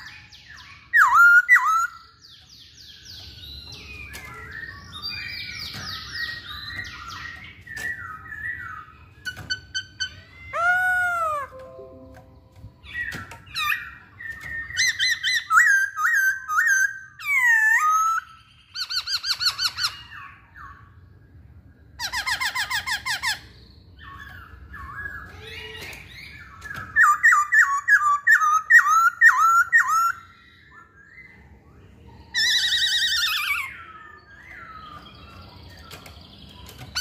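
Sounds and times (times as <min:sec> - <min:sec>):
bird calling in bursts: 0:09.3 - 0:12.0.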